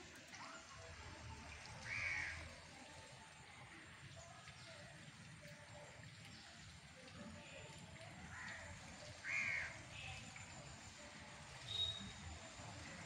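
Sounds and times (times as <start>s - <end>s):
crow cawing: 1.8s - 2.4s, 8.3s - 8.6s, 9.2s - 9.8s.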